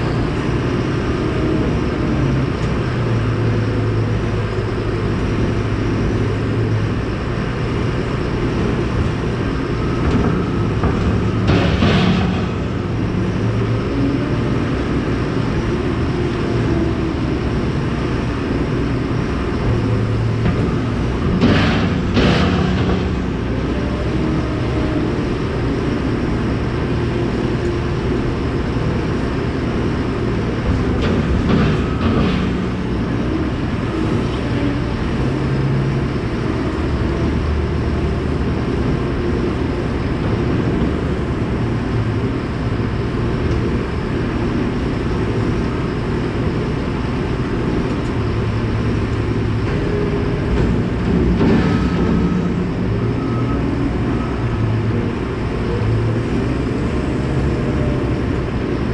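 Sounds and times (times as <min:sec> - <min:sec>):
feed mixer auger rumbling: 0:00.0 - 0:58.9.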